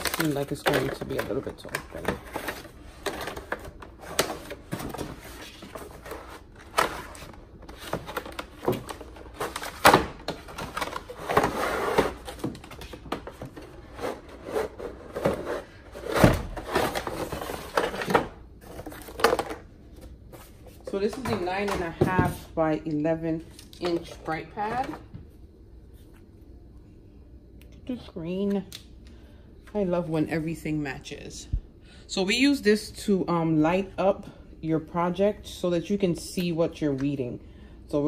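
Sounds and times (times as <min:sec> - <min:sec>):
cardboard rustling and scraping: 0:00.8 - 0:22.5.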